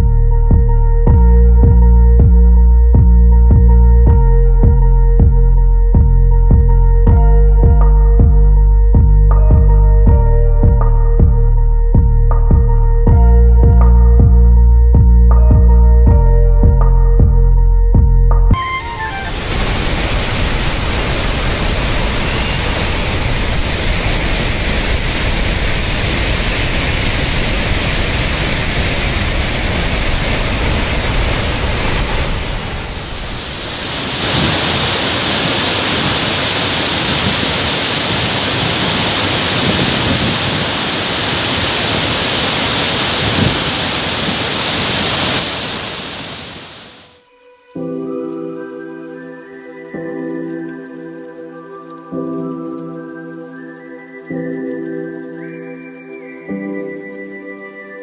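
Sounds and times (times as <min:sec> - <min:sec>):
water rushing over waterfall: 0:18.6 - 0:47.1.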